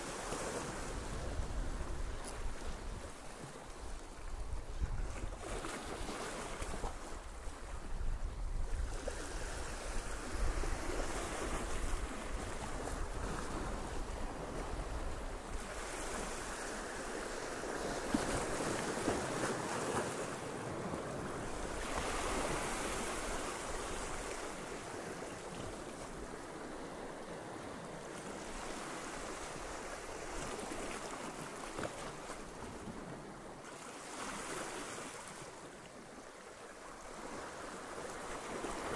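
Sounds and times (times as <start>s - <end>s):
waves breaking over rocks: 15.6s - 25.8s.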